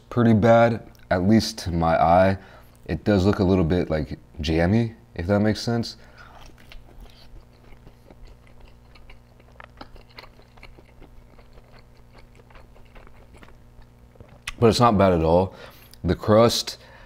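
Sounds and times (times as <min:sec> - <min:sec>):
chewing with wet mouth clicks: 0:06.2 - 0:14.6.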